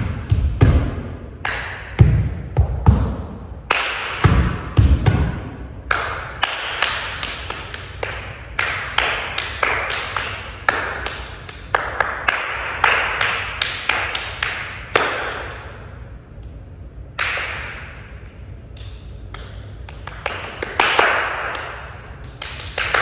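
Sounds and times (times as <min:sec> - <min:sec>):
hands clapping in rhythm: 0:01.4 - 0:01.9, 0:03.6 - 0:04.3, 0:05.8 - 0:15.8, 0:16.4 - 0:18.0, 0:18.7 - 0:23.0.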